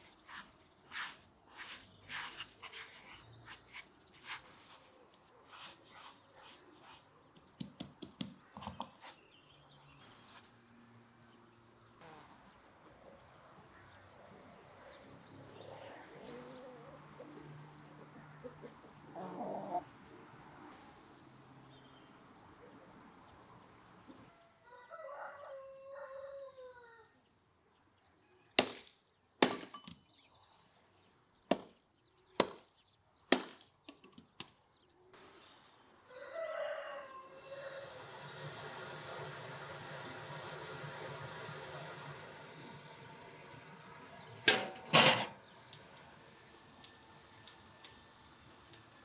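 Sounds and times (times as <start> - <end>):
poultry: 12.0 - 20.2, 24.1 - 27.3, 35.2 - 49.0
rooster crowing: 24.3 - 27.1, 36.1 - 44.9
axe chopping firewood: 28.6 - 29.9, 32.4 - 32.6, 33.3 - 33.6.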